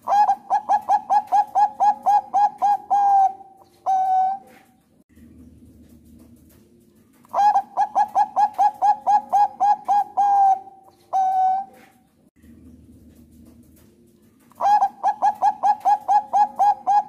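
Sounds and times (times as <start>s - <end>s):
dove cooing: 0.0s - 4.9s, 7.3s - 12.1s, 14.3s - 17.0s.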